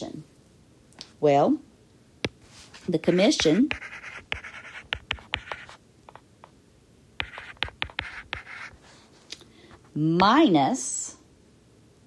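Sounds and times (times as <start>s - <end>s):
stylus scratching on tablet: 2.6s - 6.2s, 7.2s - 9.1s.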